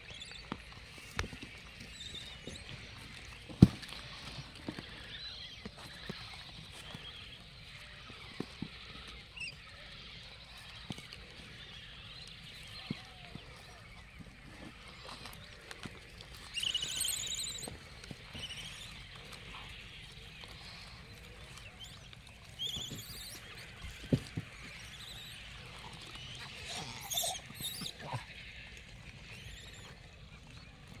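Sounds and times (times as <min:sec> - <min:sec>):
monkeys squealing: 0:16.6 - 0:19.0, 0:22.6 - 0:23.6, 0:26.0 - 0:28.3.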